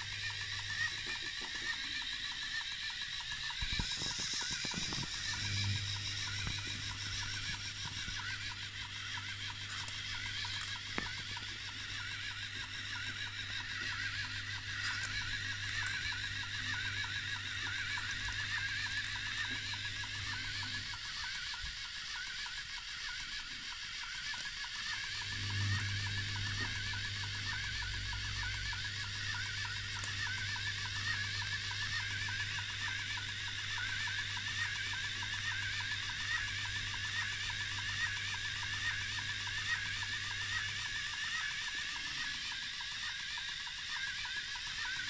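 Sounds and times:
motors whirring: 0.0s - 45.0s
low hum: 3.6s - 20.9s.

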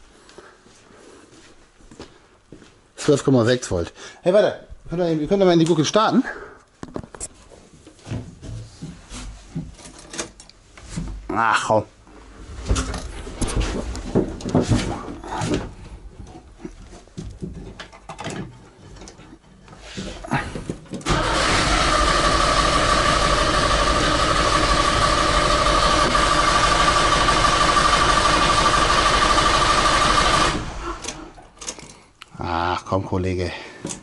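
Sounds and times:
starter motor cranking: 21.0s - 31.7s.

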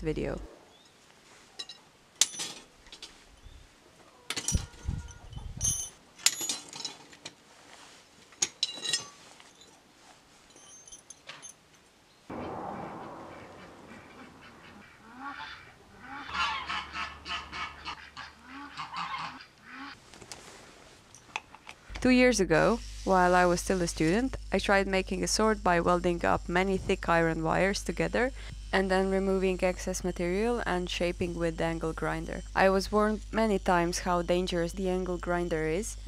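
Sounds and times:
wires and tools clinking on concrete: 1.6s - 3.5s, 4.3s - 7.2s, 8.3s - 9.8s, 10.4s - 11.7s
sudden rushing noise: 12.3s - 17.2s
repeated animal calls: 12.3s - 20.0s.

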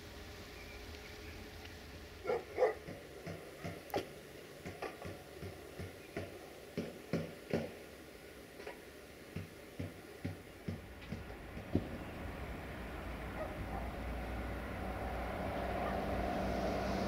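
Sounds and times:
dog barking: 2.2s - 3.0s, 4.8s - 5.1s, 13.3s - 14.0s, 15.8s - 16.1s.

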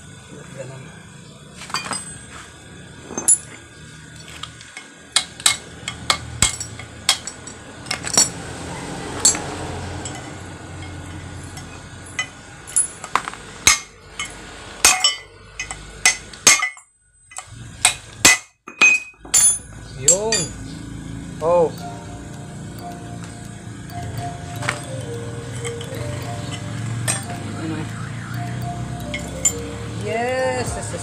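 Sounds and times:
hammer striking metal drift: 9.2s - 20.6s, 21.8s - 30.1s.

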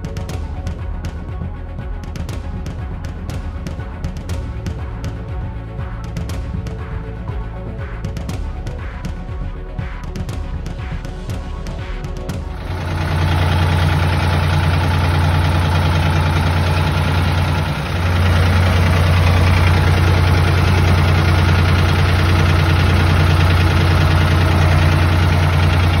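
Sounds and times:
tractor engine running: 12.3s - 26.0s.

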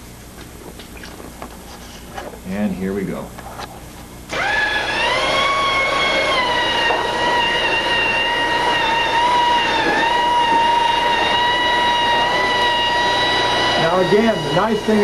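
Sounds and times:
electric drill motor whining: 4.3s - 15.0s.

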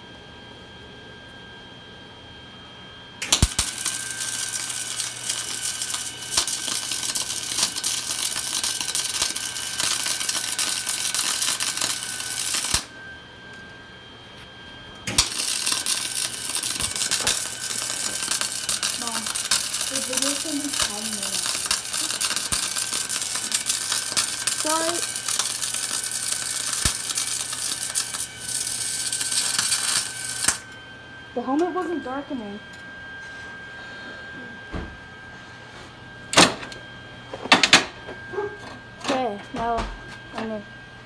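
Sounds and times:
welder arc crackling: 3.2s - 13.0s, 15.0s - 30.7s.

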